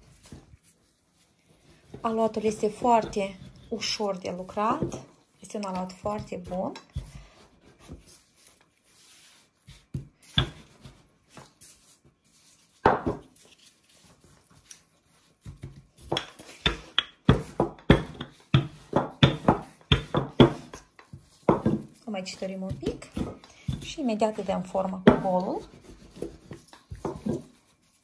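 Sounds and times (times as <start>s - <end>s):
rolling pin knocking on dough: 15.4s - 22.0s.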